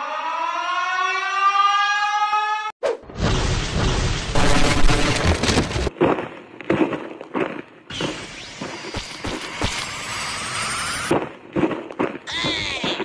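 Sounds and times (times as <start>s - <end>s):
siren wail: 0.0s - 2.8s
rumbling crash with shattering: 3.2s - 5.9s.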